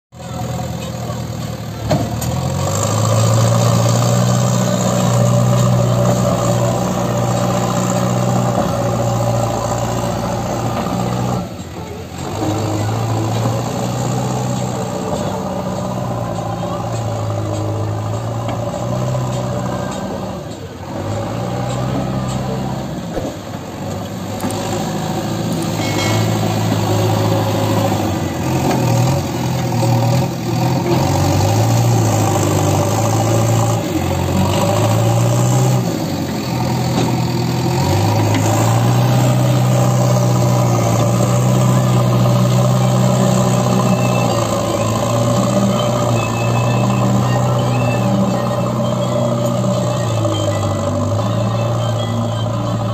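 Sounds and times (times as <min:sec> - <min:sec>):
diesel engine working under load: 0:00.1 - 0:52.9.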